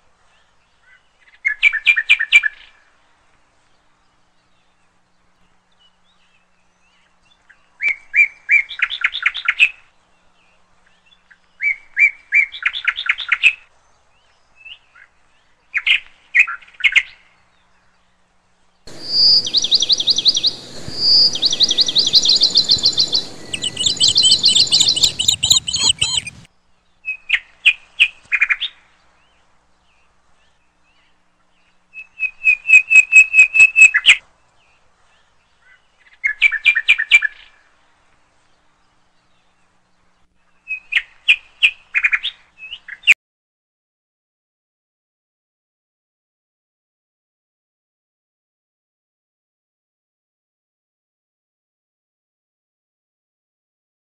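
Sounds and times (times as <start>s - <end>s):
songbird singing: 0.2s - 43.2s.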